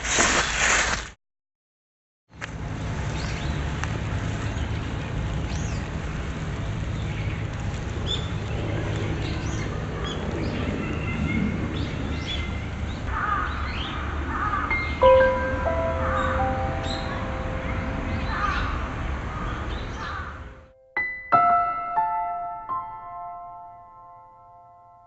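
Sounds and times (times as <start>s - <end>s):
birds chirping: 6.6s - 20.7s
crow-like calls: 13.1s - 20.7s
sustained musical chord: 14.7s - 25.0s
steady low rumble: 15.0s - 20.7s.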